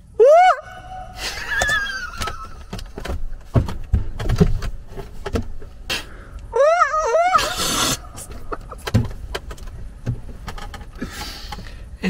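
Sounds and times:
knocks and clicks: 8.2s - 11.6s.

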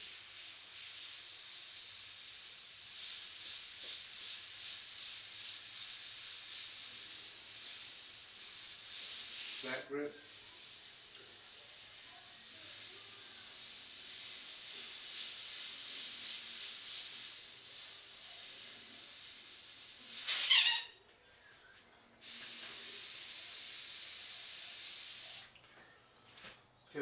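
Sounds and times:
airbrush hiss: 0.0s - 21.0s, 22.2s - 25.5s.

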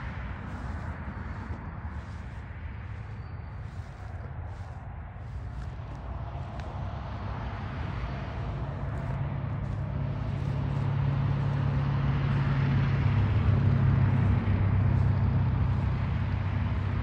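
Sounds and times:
road noise: 0.0s - 17.0s
vehicle engine passing by: 0.0s - 17.0s.

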